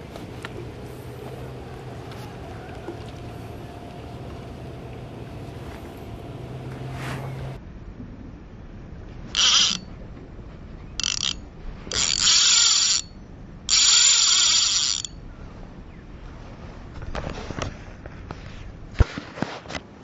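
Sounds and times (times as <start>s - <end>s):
fishing reel drag buzzing: 9.3s - 9.9s, 11.0s - 15.2s.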